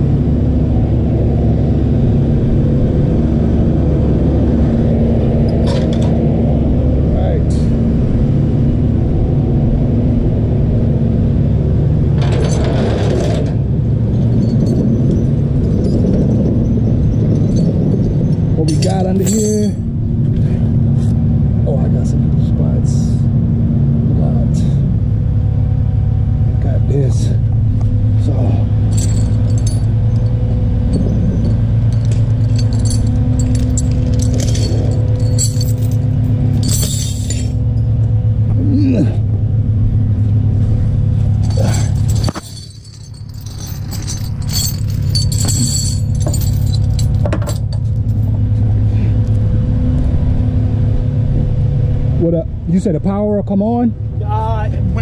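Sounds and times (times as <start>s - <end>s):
truck engine rumbling: 0.0s - 55.0s
light metallic clinks: 28.9s - 37.9s, 41.4s - 48.4s.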